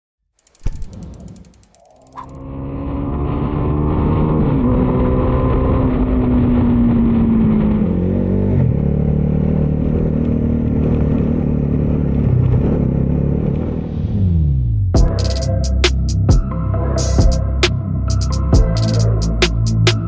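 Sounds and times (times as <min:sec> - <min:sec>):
motorcycle engine running: 0:00.4 - 0:02.8.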